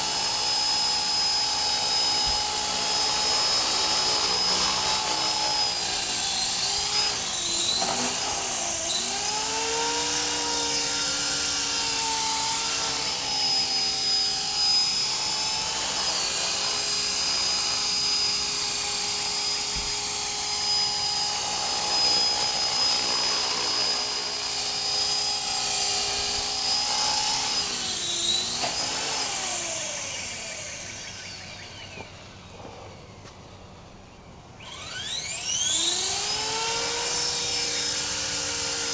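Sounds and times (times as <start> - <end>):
rc helicopter rotor whining: 0.0 - 33.8, 34.4 - 38.9.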